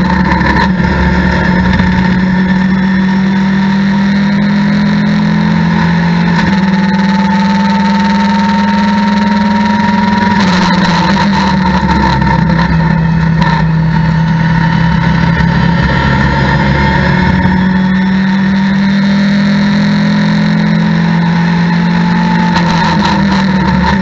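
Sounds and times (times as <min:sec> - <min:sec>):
race car engine accelerating: 0:00.0 - 0:24.0.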